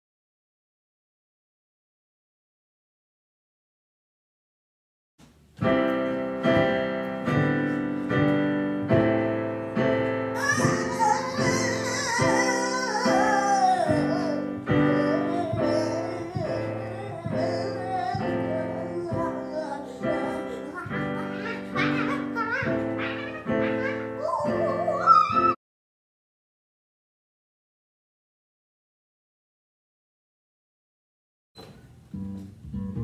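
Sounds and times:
digital piano chords: 5.5s - 25.6s
high voice singing: 10.4s - 25.6s.

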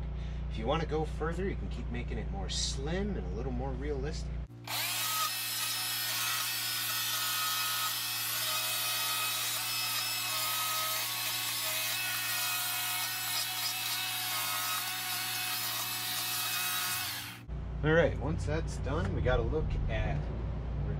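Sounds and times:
chainsaw cutting wood: 4.5s - 17.4s.

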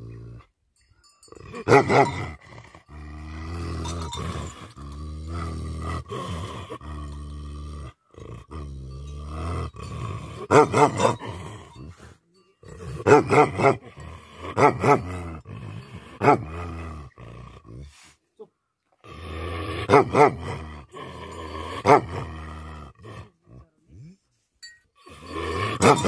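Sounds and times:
dog growling: 1.4s - 12.0s, 12.6s - 18.0s, 19.0s - 24.2s, 25.0s - 26.0s
dog barking: 1.6s - 2.2s, 10.5s - 11.2s, 13.0s - 13.8s, 19.9s - 20.4s, 25.8s - 26.0s.

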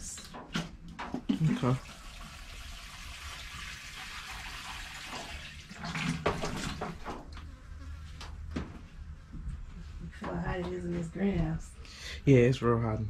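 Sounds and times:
water pouring from watering can: 1.3s - 7.1s
watering can knocks: 6.0s - 7.2s.

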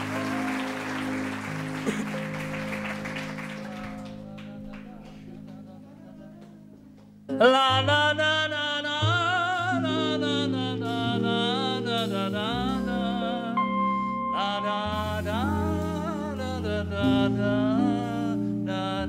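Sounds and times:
audience applause: 0.0s - 5.6s
band playing: 0.0s - 5.6s, 9.2s - 18.3s
bass notes: 0.0s - 19.0s
man singing sustained notes: 3.6s - 6.7s, 7.3s - 19.0s.

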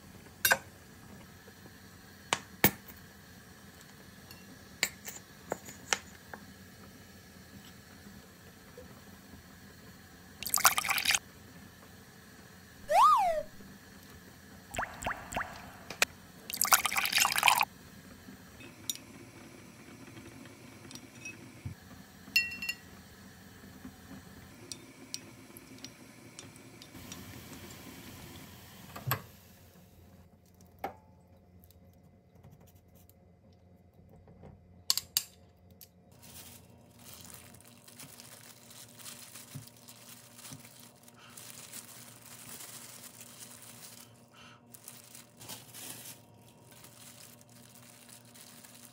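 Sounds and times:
liquid pouring and dripping: 10.4s - 11.2s, 14.7s - 17.7s
glass clink: 22.4s - 22.8s.

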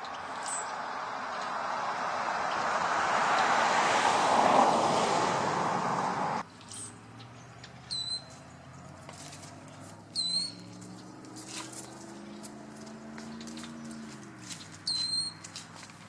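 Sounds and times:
loud rushing noise: 1.8s - 6.4s
faint scattered clicks: 7.6s - 8.5s
short high squeaky chirps: 7.9s - 8.4s, 10.1s - 10.7s, 14.8s - 15.5s.

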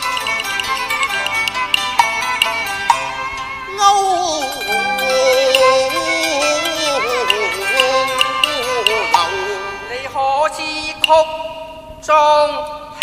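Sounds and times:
plucked string notes: 0.0s - 10.2s
sliding wavering melody: 0.0s - 10.2s.

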